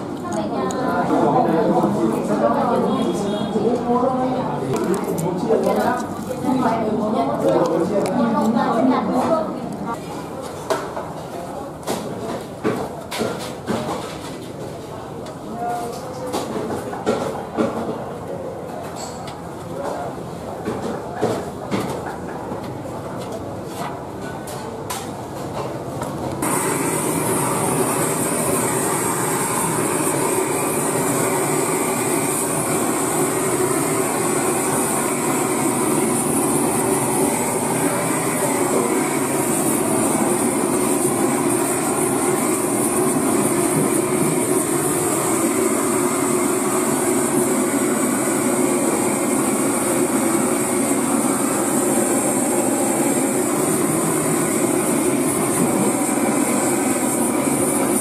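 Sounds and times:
blowtorch flame hissing: 26.4s - 58.0s.

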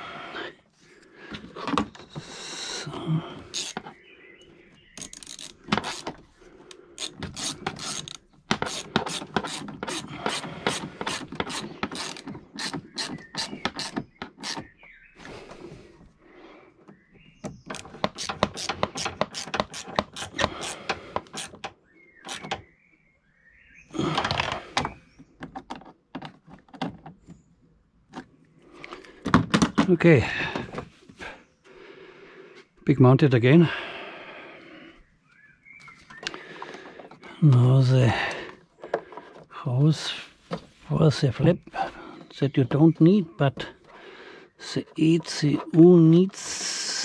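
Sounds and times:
socket ratchet clicking: 3.5s - 3.9s, 5.0s - 6.2s, 7.0s - 14.7s, 17.7s - 22.7s
clatter of handling tools: 7.0s - 14.7s, 17.4s - 22.7s, 36.1s - 39.6s.

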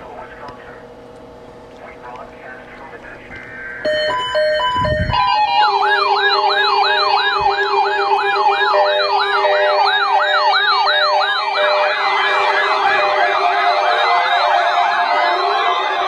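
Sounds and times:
interrupted beeping: 2.0s - 16.0s
steady alarm tone: 3.8s - 16.0s
warbling alarm tones: 3.8s - 16.0s.

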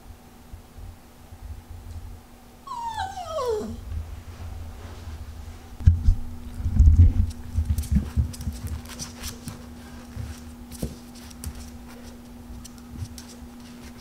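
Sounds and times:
dog whining: 2.7s - 3.9s.

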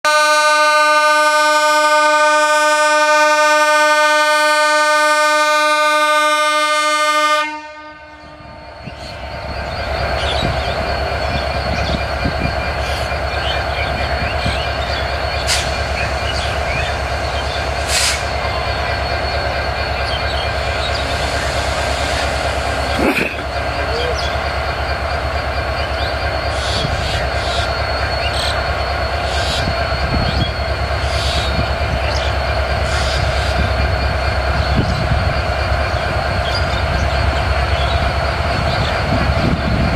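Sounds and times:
locomotive horn blast: 0.1s - 8.6s
locomotive engine throbbing: 0.8s - 39.9s.

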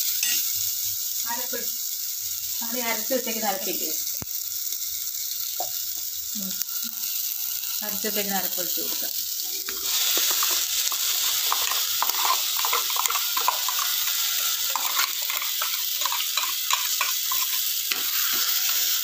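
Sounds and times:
vegetables sizzling in a pot: 0.0s - 19.0s
steel spoon scraping steel bowl: 9.8s - 18.8s.

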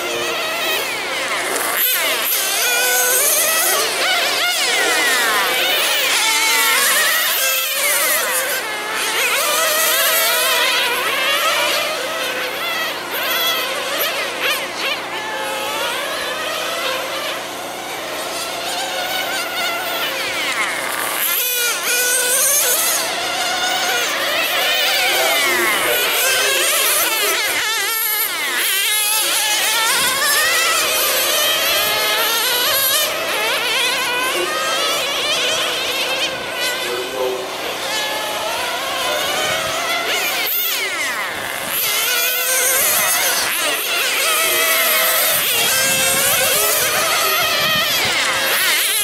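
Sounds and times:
rc car engines buzzing: 0.0s - 49.0s.

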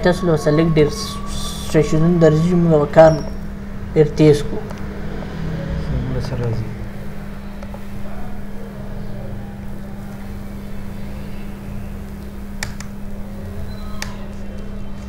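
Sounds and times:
machine hum with rumble: 0.0s - 15.0s
keyboard clicks: 12.6s - 12.9s.

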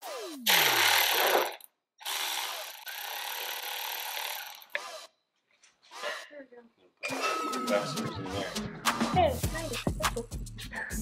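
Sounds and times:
power ratchet running: 0.0s - 5.1s.

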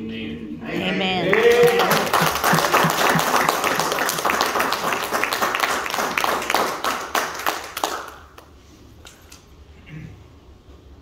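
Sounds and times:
voices: 0.6s - 3.8s
congregation clapping: 0.8s - 8.6s.

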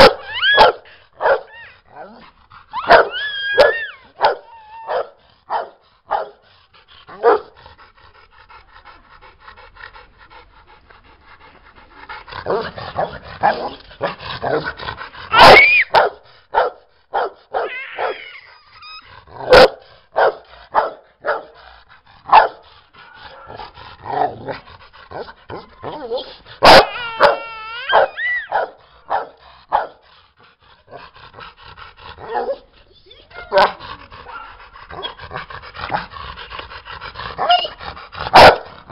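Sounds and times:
dog barking: 0.0s - 1.5s, 2.9s - 6.4s, 7.2s - 7.5s, 15.3s - 18.2s, 19.4s - 21.6s, 22.3s - 22.6s, 26.2s - 30.0s, 32.2s - 32.6s, 33.5s - 35.1s, 38.3s - 38.7s
dog whining: 0.0s - 5.3s, 15.3s - 16.0s, 17.5s - 19.6s, 25.8s - 28.7s, 32.2s - 35.2s, 37.4s - 37.8s.

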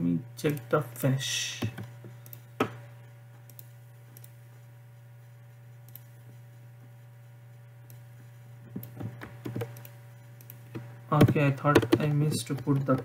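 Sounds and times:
steady low hum: 0.0s - 13.0s
computer mouse and key clicks: 1.6s - 2.4s, 3.5s - 4.4s, 5.9s - 6.1s, 8.7s - 13.0s.

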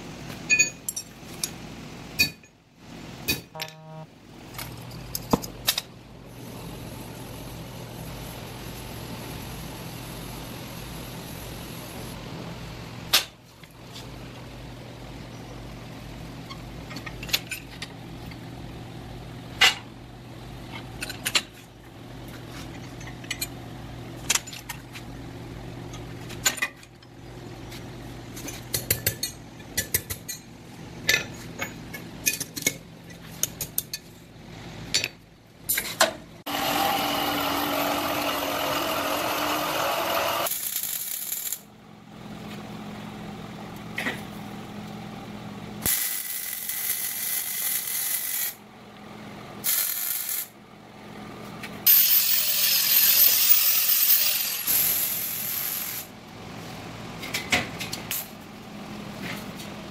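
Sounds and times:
steel parts clinking and tapping: 0.4s - 1.6s
welding crackle: 40.5s - 41.6s.

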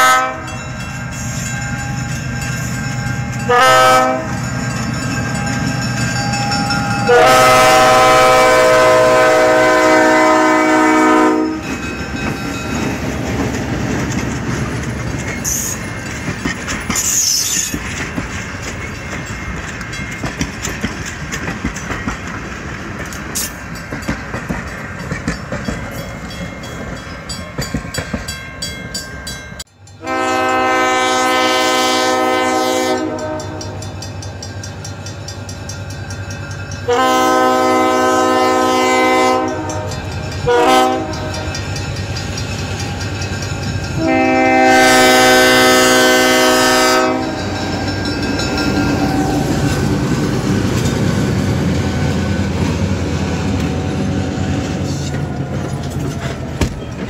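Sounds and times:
train air horn: 0.0s - 0.6s, 3.5s - 4.4s, 7.0s - 11.8s, 30.0s - 33.8s, 36.9s - 41.6s, 44.0s - 47.9s
train wheels clattering: 0.0s - 31.0s, 32.4s - 57.0s
train rumbling: 0.0s - 57.0s.

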